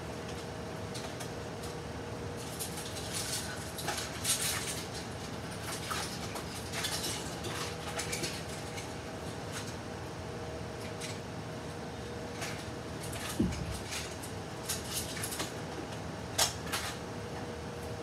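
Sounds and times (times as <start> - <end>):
room hum: 0.0 - 18.0
rustling and light clattering: 2.4 - 9.8, 12.3 - 17.0.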